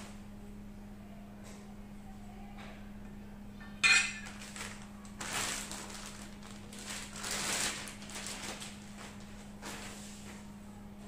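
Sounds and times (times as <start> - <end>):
steady low hum: 0.0 - 11.0
plastic bags rustling: 4.0 - 10.5.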